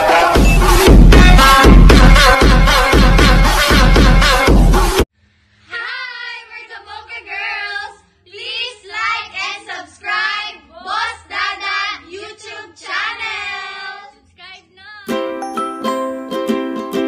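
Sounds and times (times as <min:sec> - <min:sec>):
women singing together: 0:05.7 - 0:14.5.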